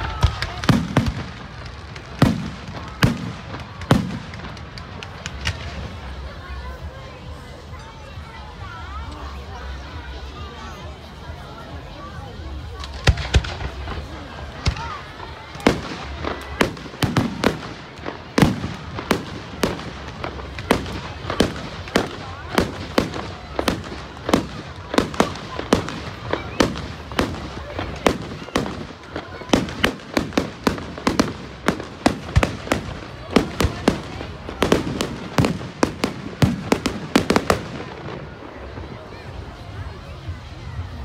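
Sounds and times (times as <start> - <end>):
fireworks bangs: 0.0 - 7.0, 12.6 - 40.0.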